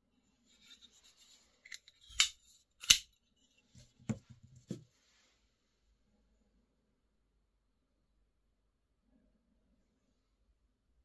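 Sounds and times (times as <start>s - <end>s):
folding knife clicks: 1.7s - 3.1s.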